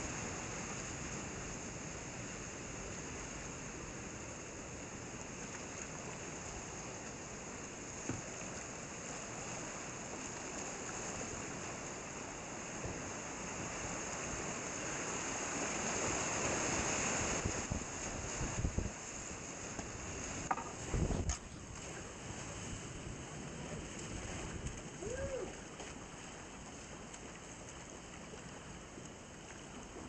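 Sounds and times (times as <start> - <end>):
knocks and thumps on kayak: 19.7 - 21.9.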